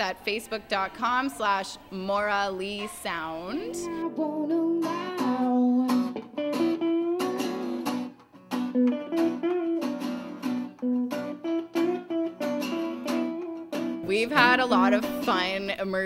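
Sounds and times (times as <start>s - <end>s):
acoustic guitar picking: 3.7s - 16.0s.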